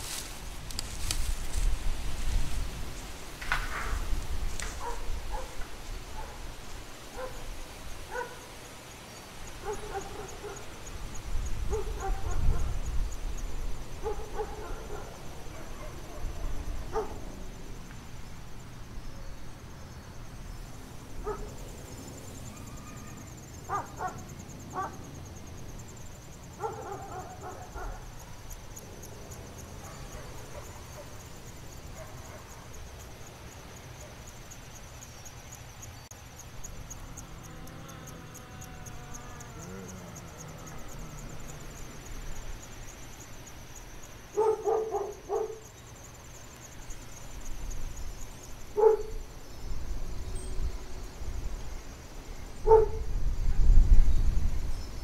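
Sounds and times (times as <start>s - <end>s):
low wind rumble: 0.0s - 8.1s, 9.4s - 32.0s, 46.8s - 55.0s
dogs barking: 4.8s - 5.6s, 7.1s - 7.5s, 8.1s - 8.5s, 9.6s - 10.7s, 11.7s - 12.8s, 14.0s - 17.2s, 21.2s - 21.6s, 23.7s - 25.0s, 26.6s - 28.1s, 29.8s - 31.2s, 31.9s - 32.8s, 44.3s - 45.7s, 48.8s - 49.2s, 52.7s - 53.0s.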